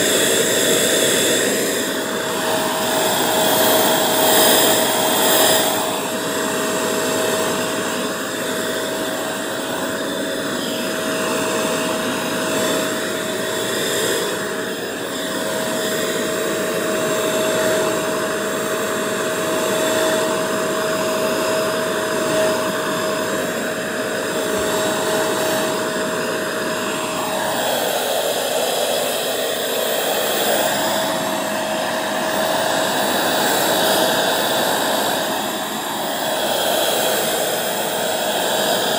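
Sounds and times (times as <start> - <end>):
vacuum air rushing: 0.0 - 18.6
vacuum motor whine: 0.0 - 38.9.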